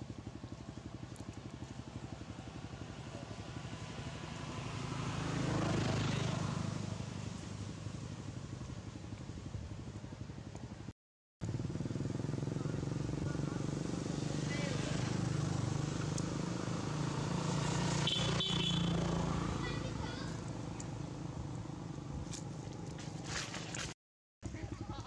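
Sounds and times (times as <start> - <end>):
vehicle passing: 2.2 - 8.7, 11.6 - 23.8.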